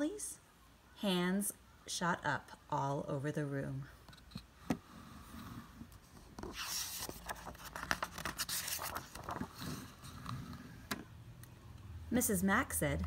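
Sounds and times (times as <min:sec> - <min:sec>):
book page rustling: 0:05.8 - 0:10.4.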